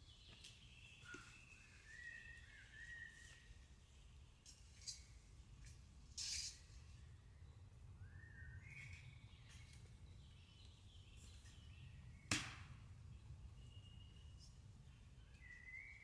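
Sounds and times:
sharp crack: 12.3 - 12.8.

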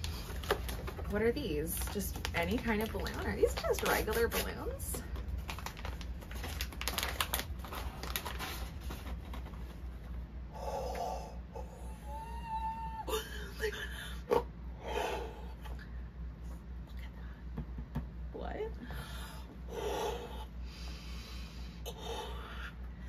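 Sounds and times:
paper sachet crinkling and tearing: 0.0 - 9.2.

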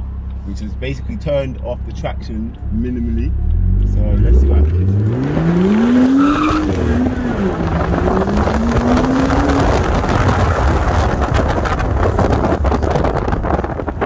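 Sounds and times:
car engine accelerating hard: 0.0 - 14.0
tyre squeal: 6.0 - 7.0.

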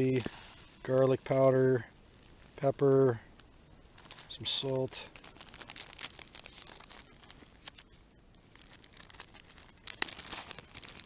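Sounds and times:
plastic bag crinkling: 0.0 - 1.6, 3.9 - 11.0.

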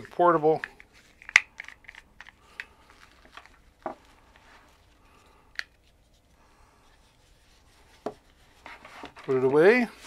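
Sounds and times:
fabric rustling: 2.8 - 5.2, 5.8 - 10.0.

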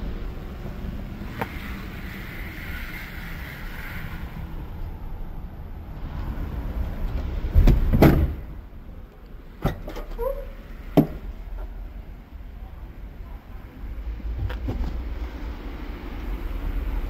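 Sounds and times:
car door shutting: 7.5 - 8.5
tailgate squeak: 9.6 - 11.2.

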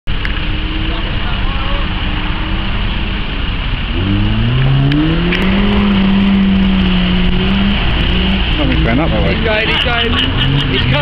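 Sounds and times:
engine revving hard: 3.8 - 11.0.

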